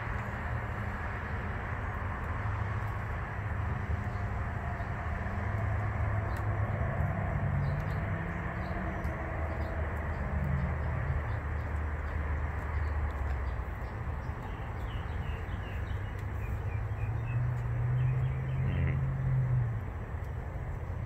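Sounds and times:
bird chirping: 0:07.6 - 0:19.5.

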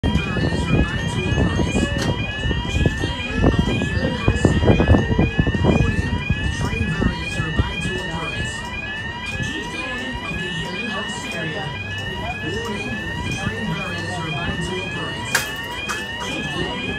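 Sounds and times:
level crossing alarm tone: 0:00.0 - 0:16.9.

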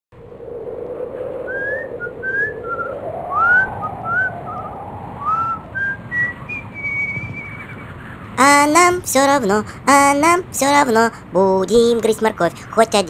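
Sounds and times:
background noise: 0:00.2 - 0:13.0
person whistling a tune: 0:01.5 - 0:07.6.

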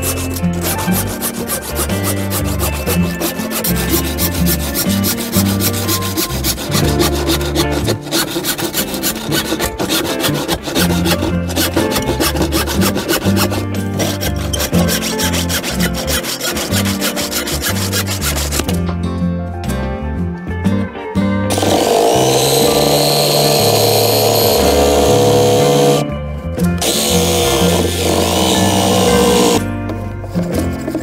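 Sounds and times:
hand saw rasping through wood: 0:00.0 - 0:18.7, 0:21.5 - 0:26.0, 0:26.8 - 0:29.6
background music with bass line: 0:00.0 - 0:31.0.

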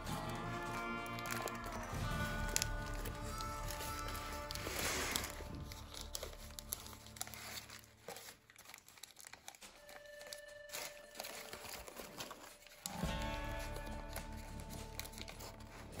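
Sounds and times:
paper crinkling and rustling: 0:00.0 - 0:16.0.

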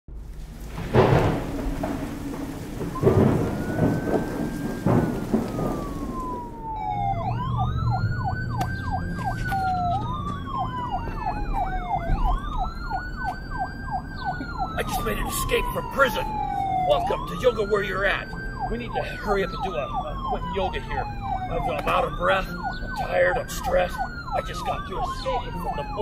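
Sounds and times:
steady rain: 0:00.1 - 0:07.9, 0:14.4 - 0:22.6, 0:23.3 - 0:26.0
thunder cracking and rumbling: 0:00.1 - 0:09.0, 0:09.6 - 0:26.0
police siren wailing: 0:00.5 - 0:26.0
siren wailing and yelping: 0:01.4 - 0:26.0.

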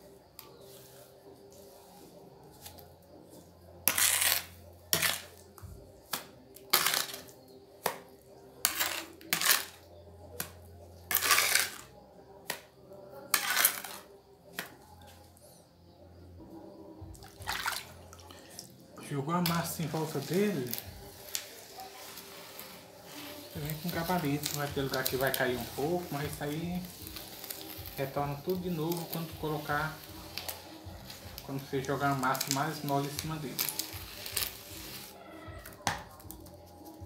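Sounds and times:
trowel scraping wet mortar: 0:03.8 - 0:05.4, 0:06.7 - 0:07.3, 0:08.6 - 0:11.9, 0:13.3 - 0:14.1.

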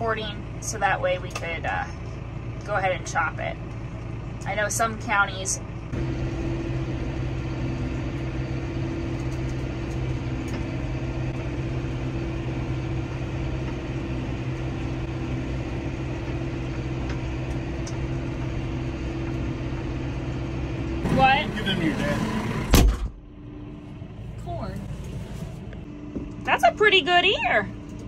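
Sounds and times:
tractor engine humming: 0:00.0 - 0:28.0.

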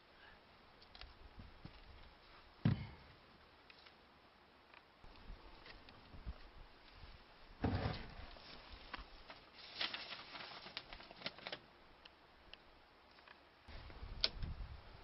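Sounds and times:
dull thump: 0:02.6 - 0:03.0.

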